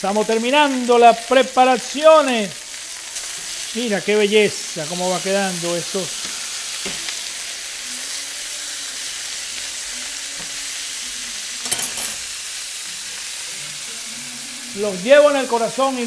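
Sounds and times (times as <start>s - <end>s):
food sizzling in hot pan: 0.0s - 16.0s.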